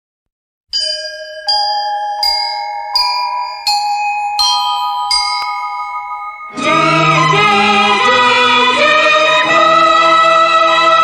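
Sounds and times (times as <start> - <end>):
bell-like chime notes: 0.8 - 8.4.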